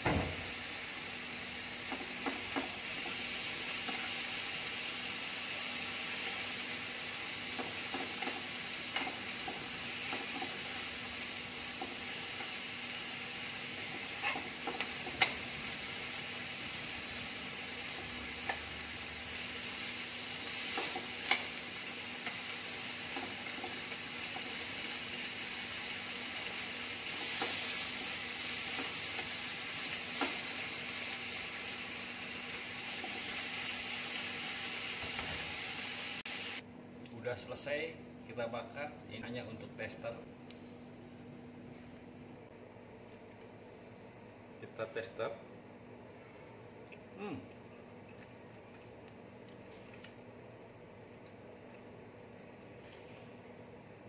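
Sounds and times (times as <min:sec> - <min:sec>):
meat sizzling in frying pan: 0:00.0 - 0:36.6.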